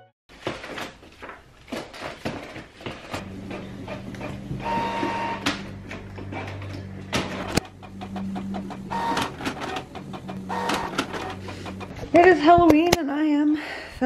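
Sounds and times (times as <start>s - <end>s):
printer motor hum: 3.2s - 12.1s
printer sharp click: 3.9s - 11.9s.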